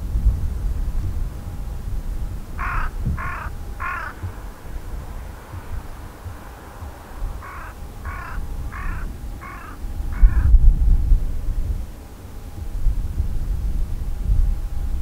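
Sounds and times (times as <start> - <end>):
loud low rumble: 0.0 - 11.9
crow cawing: 2.6 - 10.6.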